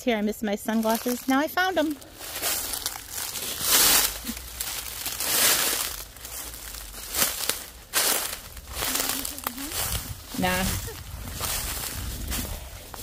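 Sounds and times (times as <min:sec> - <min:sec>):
footsteps on dry leaves: 0:00.6 - 0:13.0.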